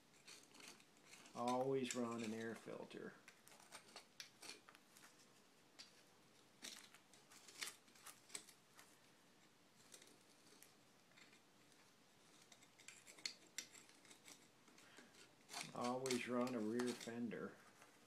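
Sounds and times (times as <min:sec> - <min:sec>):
screwdriver scraping metal: 0:00.1 - 0:02.8, 0:12.3 - 0:17.9.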